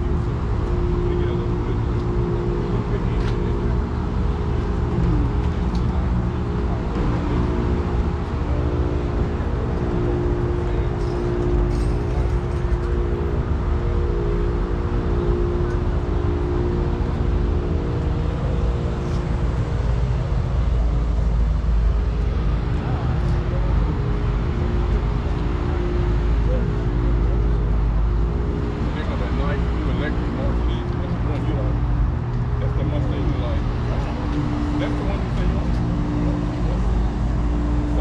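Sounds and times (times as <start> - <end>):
heavy low rumble: 0.0 - 38.0
low mechanical hum: 0.0 - 38.0.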